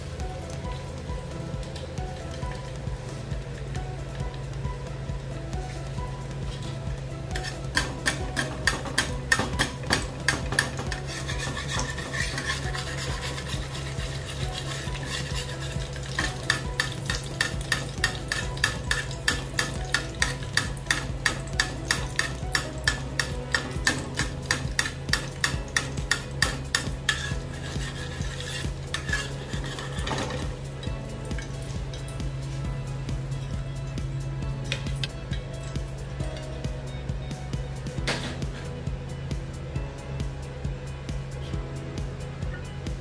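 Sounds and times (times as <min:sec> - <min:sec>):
egg sizzling: 0:00.0 - 0:36.7
metal spatula scraping a pan: 0:06.5 - 0:30.6.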